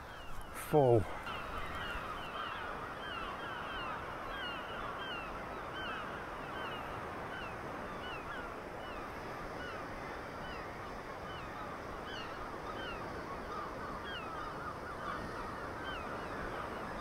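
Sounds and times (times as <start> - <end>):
flock of gulls calling: 0.0 - 17.0.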